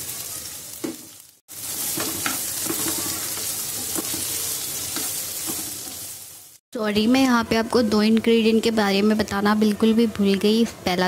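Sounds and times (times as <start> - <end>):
onions sizzling in hot oil: 0.0 - 6.6
spatula scraping and tapping pan: 1.9 - 6.1.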